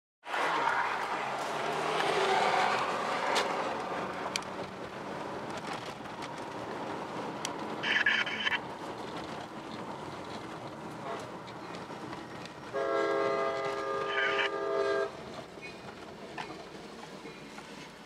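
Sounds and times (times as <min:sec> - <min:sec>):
car rolling on gravel: 0:01.0 - 0:12.7.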